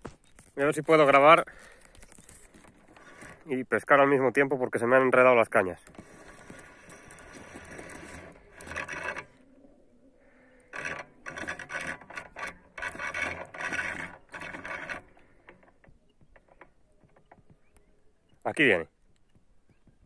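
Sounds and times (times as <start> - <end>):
fishing reel whirring: 5.8 - 9.5, 10.3 - 15.8.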